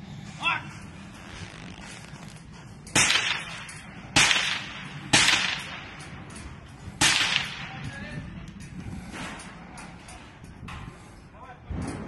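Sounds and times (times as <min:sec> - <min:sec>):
gunshots with echo: 0:03.0 - 0:05.9, 0:07.0 - 0:07.8.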